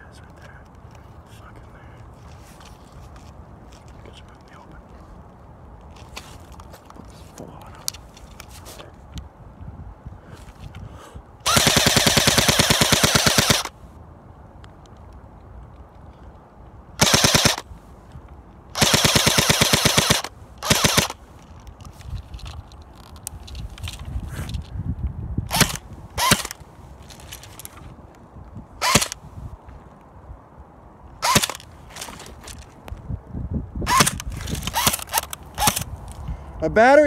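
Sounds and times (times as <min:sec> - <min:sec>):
airsoft gun firing bursts: 0:11.4 - 0:13.7, 0:17.0 - 0:17.6, 0:18.8 - 0:21.2, 0:25.5 - 0:26.6
airsoft gun single shots: 0:17.0 - 0:17.6.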